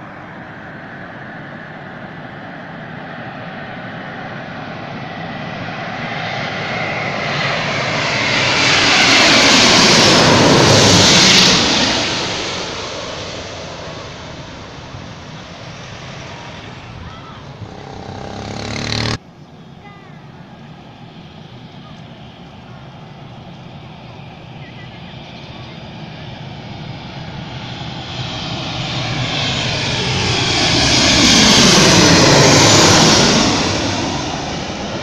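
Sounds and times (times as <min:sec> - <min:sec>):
jet airliner roaring overhead: 0:00.0 - 0:35.0.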